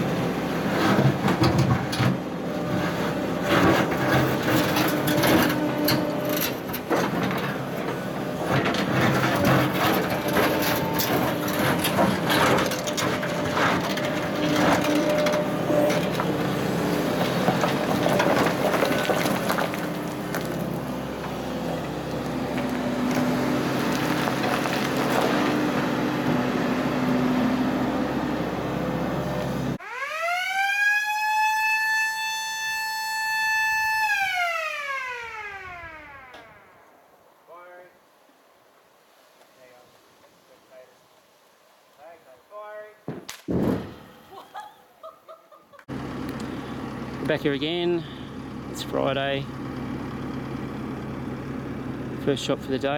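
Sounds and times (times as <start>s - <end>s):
excavator engine running: 0.0s - 29.8s, 45.9s - 52.9s
bucket scraping rubble: 0.6s - 26.1s
warning siren wailing: 29.8s - 36.9s.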